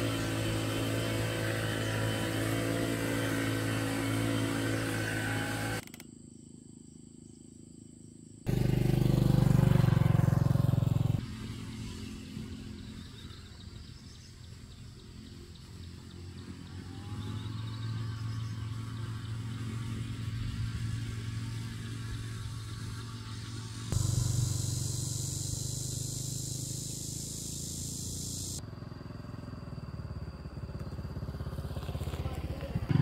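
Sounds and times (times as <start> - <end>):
small motorcycle engine running: 0.0 - 6.0, 8.5 - 33.0
hiss: 21.3 - 28.6.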